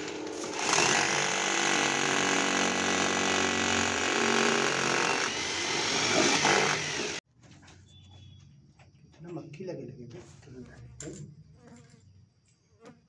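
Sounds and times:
electric drill drilling foam: 0.4s - 7.2s.

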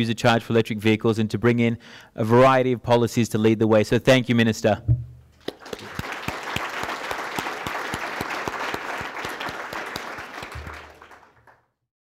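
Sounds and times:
audience applauding: 5.4s - 11.7s.

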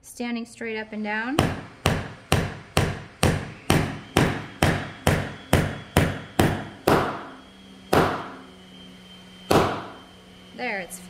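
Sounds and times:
hammer striking nail into wood: 1.4s - 7.3s, 7.9s - 8.4s, 9.5s - 10.0s.

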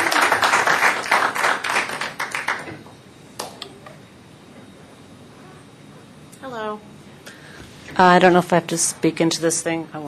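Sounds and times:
audience applauding: 0.0s - 2.8s.

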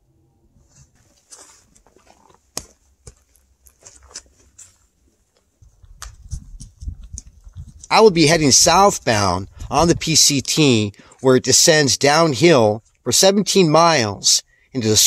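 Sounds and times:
footsteps crunching on trail: 0.8s - 10.2s.

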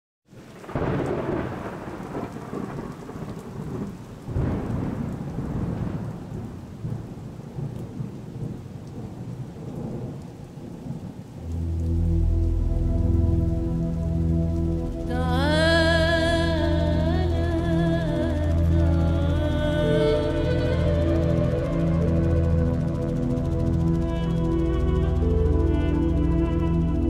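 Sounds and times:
steady rain: 0.3s - 27.0s
thunder rolling: 0.6s - 26.2s
music with low steady beat: 11.4s - 27.0s.

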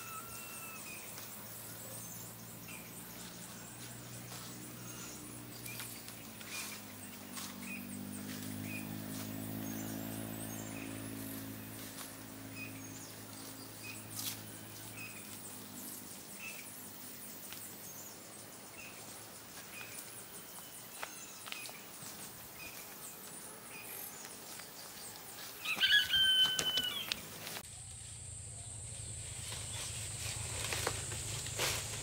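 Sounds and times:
loud bird call: 25.6s - 27.4s
low hum: 27.6s - 32.0s.

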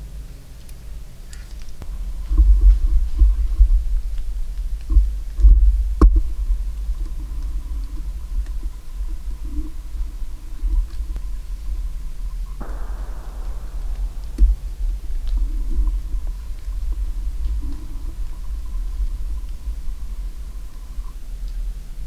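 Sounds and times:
sharp click: 12.6s - 15.8s.

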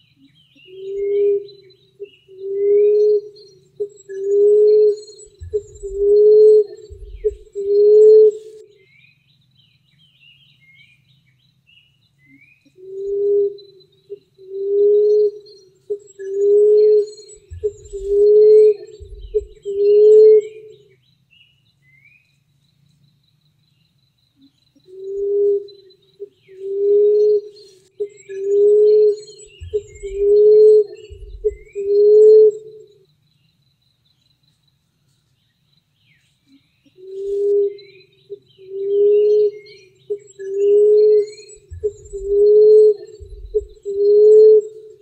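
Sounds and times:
small birds chirping: 0.0s - 45.0s
dove cooing: 0.7s - 8.6s, 12.8s - 20.8s, 24.9s - 32.8s, 37.0s - 45.0s.

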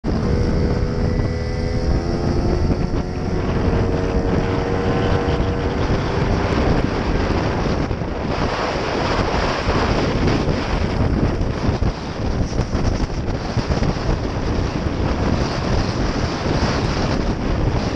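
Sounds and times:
wind buffeting microphone: 0.0s - 17.9s
motorbike engine: 0.1s - 8.4s.

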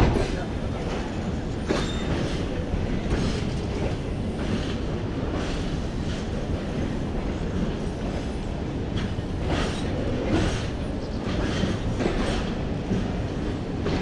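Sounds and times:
wheels clacking over rail joints: 0.0s - 8.2s
train coaches rumbling: 0.0s - 14.0s.

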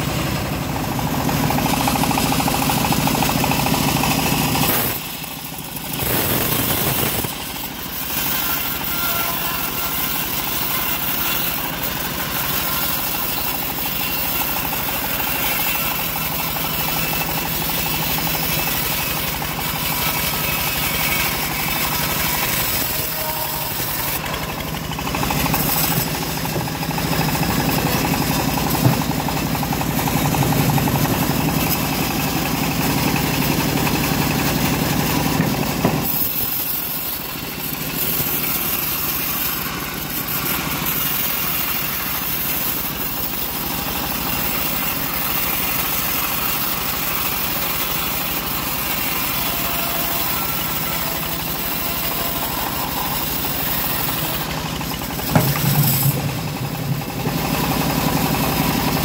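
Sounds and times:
bandsaw cutting log: 0.0s - 59.0s.

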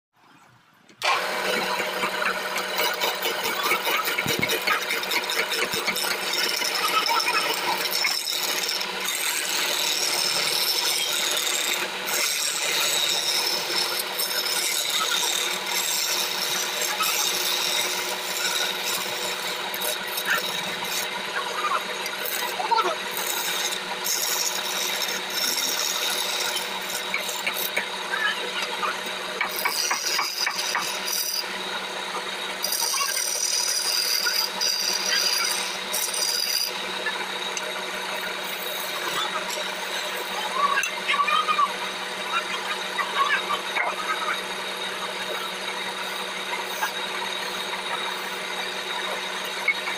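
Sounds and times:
chisel scraping wood: 1.0s - 21.2s, 21.8s - 41.0s
wood lathe humming: 1.0s - 49.9s.

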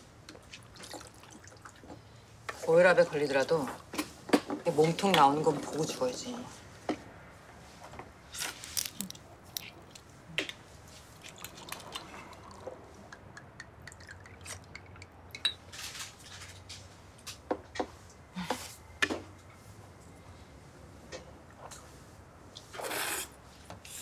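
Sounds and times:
spoon clinking on glasses: 14.8s - 15.6s
slurping noodles: 22.6s - 24.0s.

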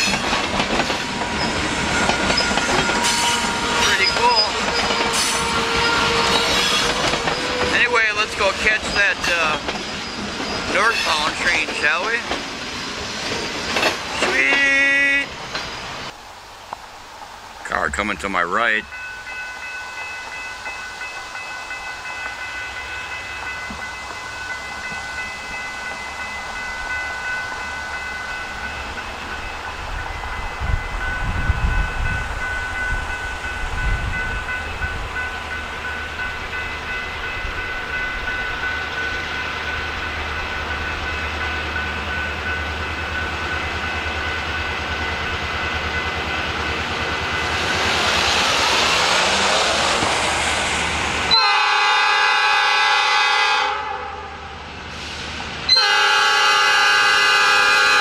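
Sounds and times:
crossing signal bell ringing: 0.0s - 15.9s, 17.7s - 49.4s, 50.9s - 54.7s
diesel locomotive rumble: 0.0s - 16.2s, 21.8s - 58.0s.

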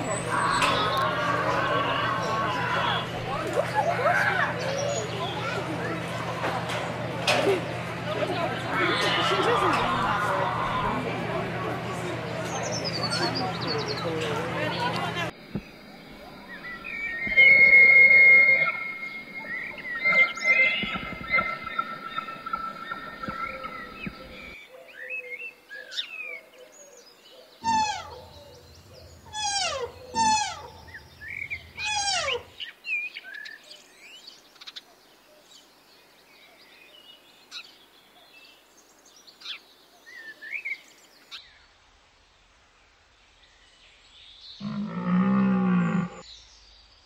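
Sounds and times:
birds whistling falling calls: 0.0s - 3.4s, 15.4s - 34.8s
low pitched animal call: 0.0s - 3.5s, 15.5s - 24.6s, 27.6s - 32.5s, 44.6s - 46.2s
short bird chirps: 15.6s - 24.6s.

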